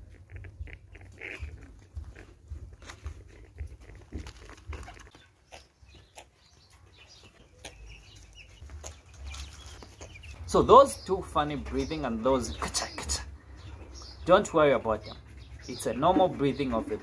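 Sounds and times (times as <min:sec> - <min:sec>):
chicks breathing with cough-like snicks: 0:12.6 - 0:14.3, 0:15.0 - 0:17.0.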